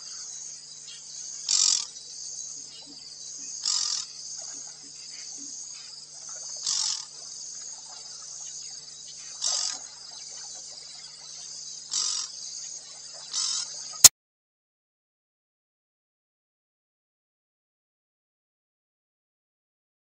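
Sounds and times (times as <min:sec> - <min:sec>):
insects chirring: 0:00.0 - 0:14.1.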